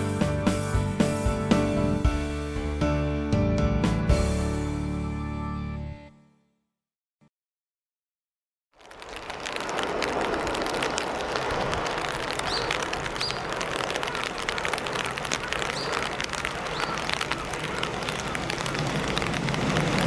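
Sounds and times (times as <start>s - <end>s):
freight train wheels rumbling: 8.9s - 20.0s.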